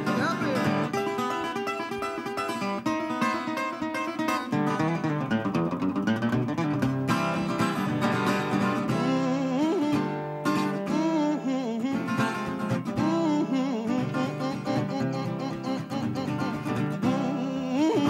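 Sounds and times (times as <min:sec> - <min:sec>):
acoustic blues guitar plucked: 0:00.0 - 0:18.0
man singing: 0:08.9 - 0:18.0.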